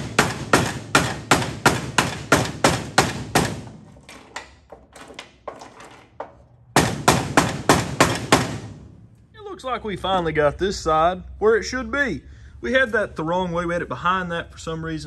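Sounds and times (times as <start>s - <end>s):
hammer striking sheet metal: 0.0s - 4.4s, 6.8s - 8.8s.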